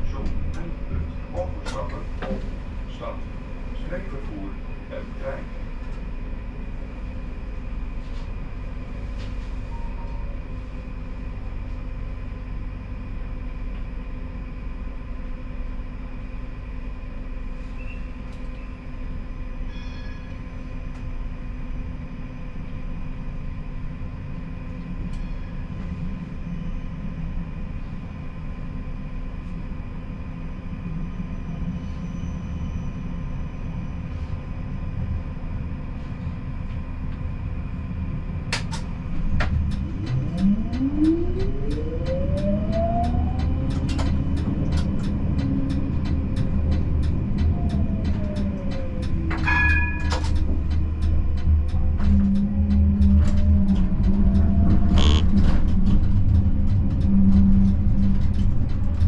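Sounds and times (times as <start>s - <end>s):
tram rolling rumble: 0.0s - 59.0s.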